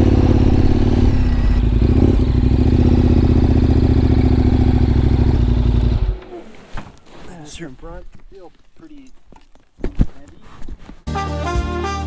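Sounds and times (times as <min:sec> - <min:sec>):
motorcycle engine idling: 0:00.0 - 0:06.4.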